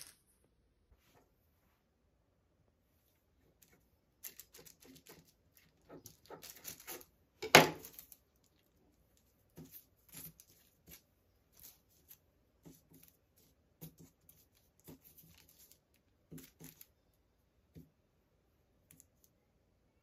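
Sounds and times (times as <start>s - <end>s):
baking paper rustling and crinkling: 3.6s - 17.0s
sharp paper crackle: 4.2s - 7.1s.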